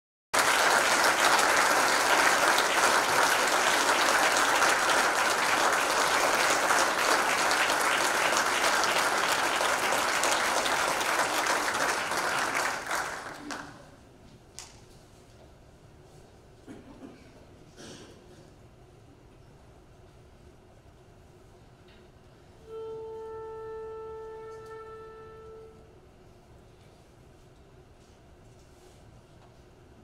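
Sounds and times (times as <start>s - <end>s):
audience applauding: 0.4s - 13.9s.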